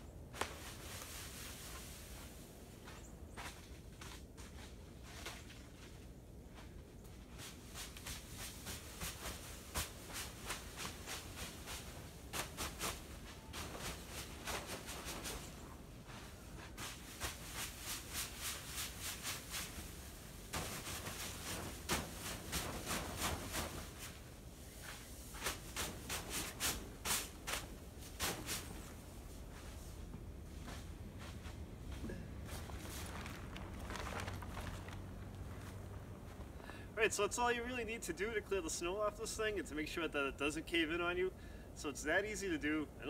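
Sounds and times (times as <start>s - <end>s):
brush knocking on fabric roof: 20.5s - 24.2s.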